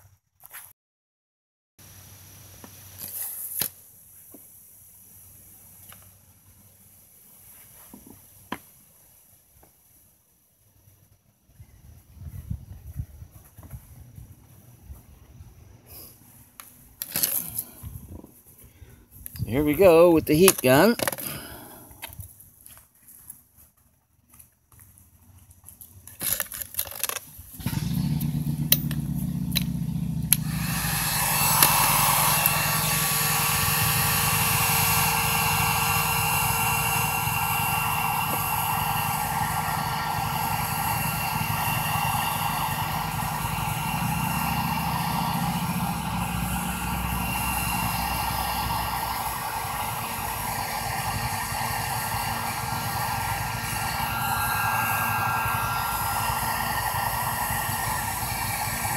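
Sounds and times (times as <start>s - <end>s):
heat gun blowing hot air: 19.6s - 21.8s, 27.6s - 58.9s.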